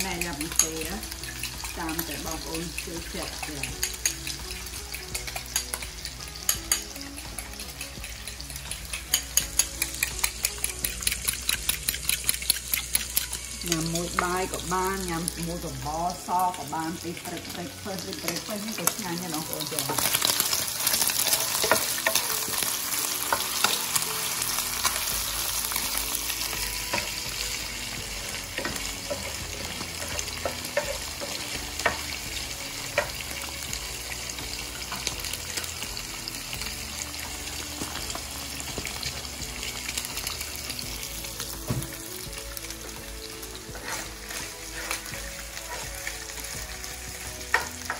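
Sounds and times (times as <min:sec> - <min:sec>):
fish deep-frying in hot oil: 0:00.0 - 0:47.9
meat sizzling in a frying pan: 0:00.0 - 0:47.9
spatula clicking against pan: 0:03.4 - 0:13.8.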